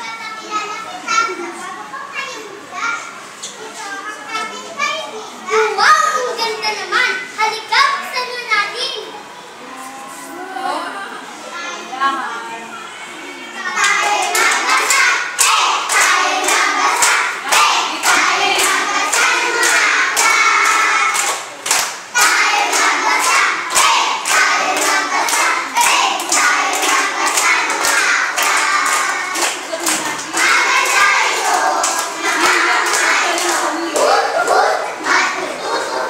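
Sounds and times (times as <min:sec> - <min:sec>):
children's choir singing: 0:12.5 - 0:36.0
rhythmic hand claps: 0:13.8 - 0:36.0.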